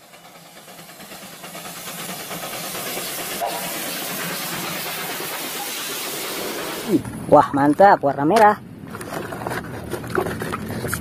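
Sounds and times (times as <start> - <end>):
steam locomotive hissing: 0.0 - 7.1.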